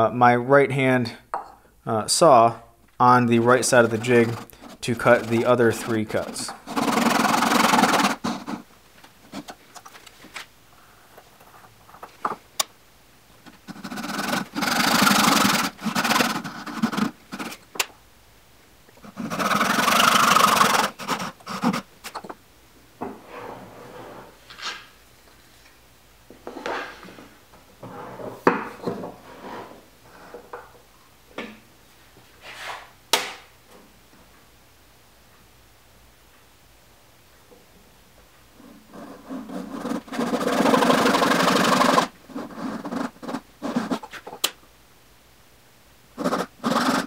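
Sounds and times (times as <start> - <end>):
hand saw cutting wood: 3.6 - 8.6, 13.6 - 17.6, 19.1 - 21.9, 39.3 - 44.0, 46.2 - 47.0.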